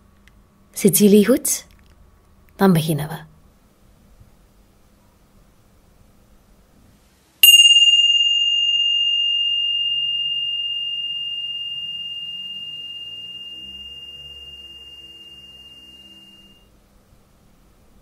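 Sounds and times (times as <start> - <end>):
meditation chime ringing: 7.4 - 16.7.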